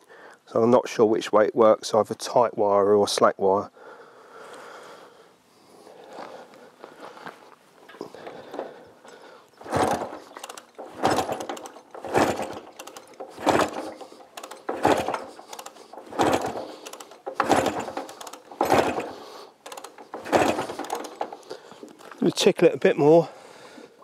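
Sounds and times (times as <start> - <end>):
motorcycle kickstart turning over engine: 7.9 - 22.5.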